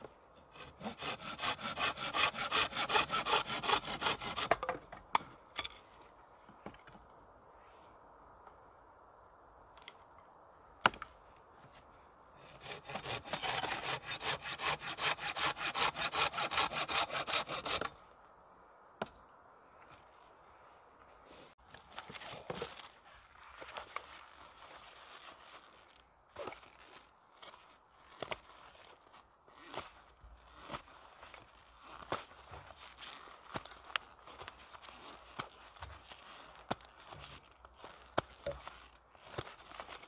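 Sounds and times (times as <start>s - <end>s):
hand saw cutting wood: 0.4s - 4.7s, 12.4s - 18.0s
handling and rustling: 19.8s - 40.0s.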